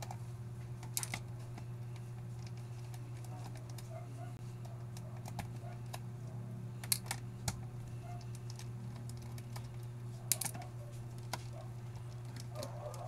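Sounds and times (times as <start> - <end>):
steady low hum: 0.0 - 13.0
clicks of small hard parts handled: 8.2 - 13.0.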